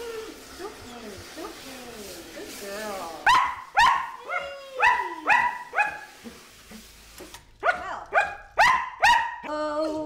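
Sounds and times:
dog barking loudly: 3.2s - 6.1s, 7.6s - 9.5s.

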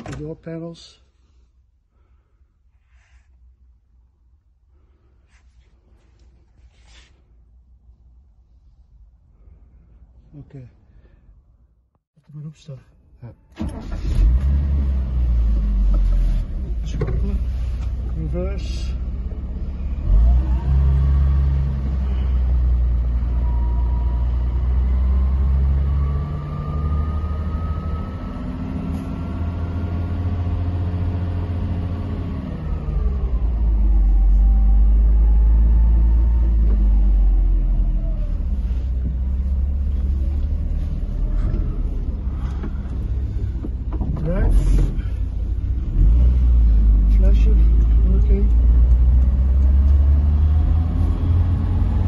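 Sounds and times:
car engine rumbling: 0.0s - 52.0s.

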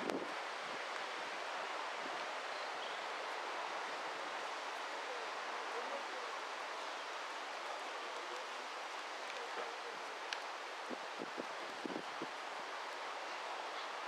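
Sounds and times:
leaves rustling: 0.0s - 14.0s
wind: 0.0s - 14.0s.

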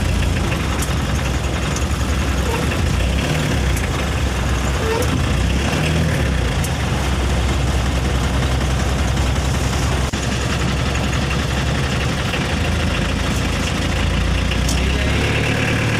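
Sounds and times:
truck engine idling: 0.0s - 15.9s.

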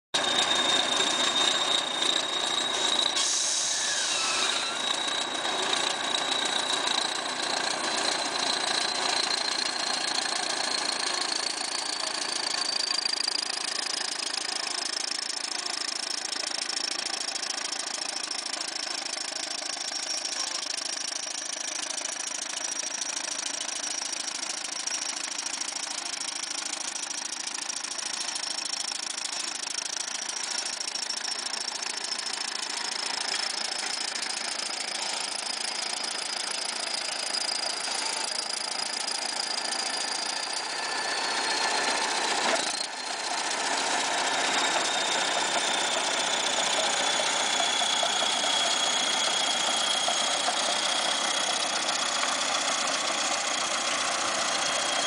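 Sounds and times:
thin high whine: 0.2s - 10.0s
bulldozer diesel engine clattering: 0.2s - 40.8s, 41.5s - 55.0s.

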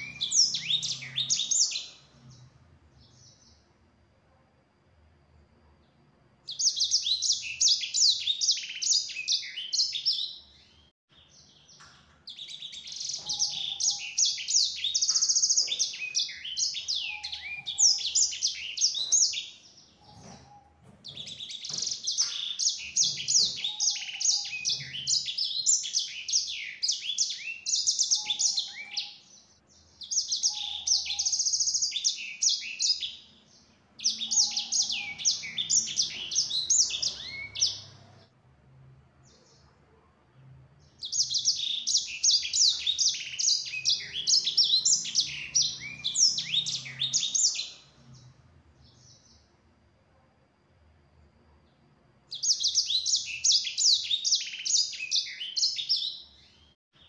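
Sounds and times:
songbird singing twittering trills: 0.0s - 3.7s, 5.8s - 38.3s, 40.8s - 49.6s, 51.7s - 57.0s.

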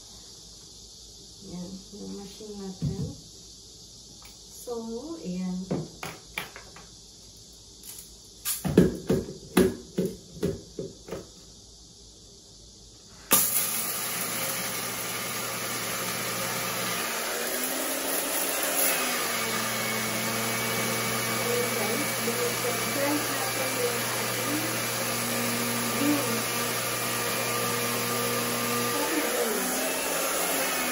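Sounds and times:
espresso machine pump buzzing: 13.3s - 30.9s.

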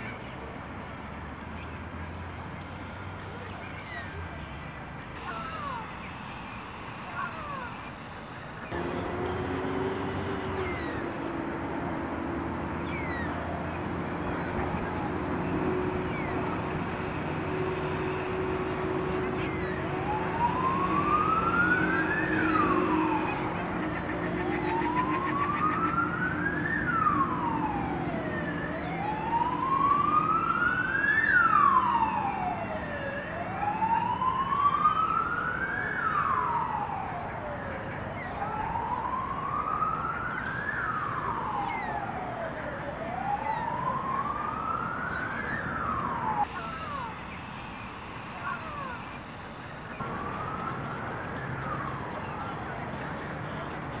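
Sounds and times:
steady low hum: 2.2s - 35.4s
emergency siren wailing: 5.1s - 54.0s.

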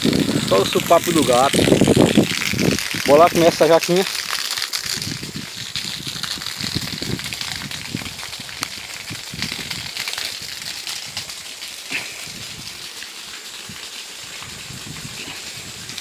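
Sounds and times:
water running from bamboo spout: 0.0s - 16.0s.

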